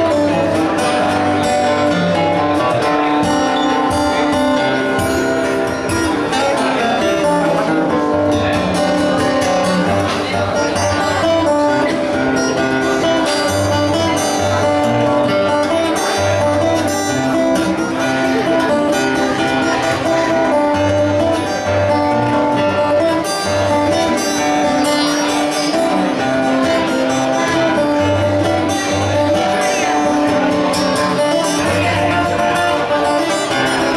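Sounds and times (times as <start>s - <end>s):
acoustic guitar playing: 0.0s - 33.9s.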